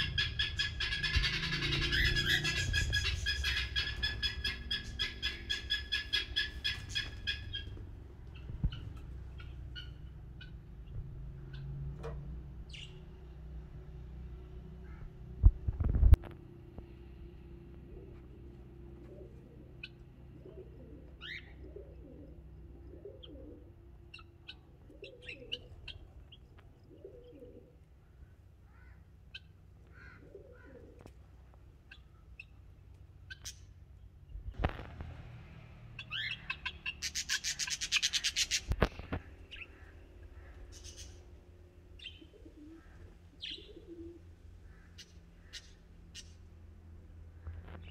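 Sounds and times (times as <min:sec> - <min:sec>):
small birds chirping: 0:00.0 - 0:12.0, 0:12.6 - 0:13.5, 0:17.8 - 0:31.1, 0:31.7 - 0:34.6, 0:35.9 - 0:46.6
pigeons cooing: 0:00.0 - 0:12.9, 0:17.8 - 0:27.9, 0:28.7 - 0:31.1, 0:36.1 - 0:45.6.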